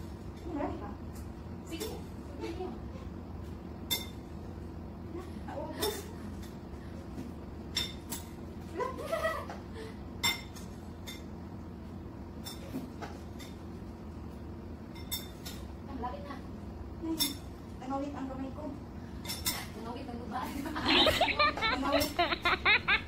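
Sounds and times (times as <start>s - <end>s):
spoon clinking against bowls: 3.9s - 4.2s, 10.2s - 11.3s, 14.9s - 15.7s, 17.2s - 17.5s
person laughing: 20.8s - 23.0s.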